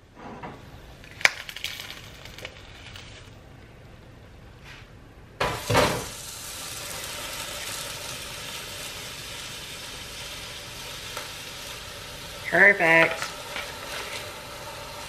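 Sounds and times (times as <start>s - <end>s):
egg sizzling in a skillet: 5.4s - 15.0s.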